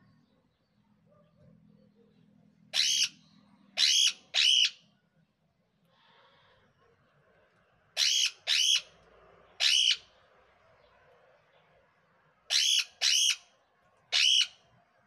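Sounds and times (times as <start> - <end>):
parakeets squawking: 2.7 - 3.2, 3.8 - 4.8, 8.0 - 8.9, 9.6 - 10.1, 12.5 - 13.4, 14.1 - 14.5.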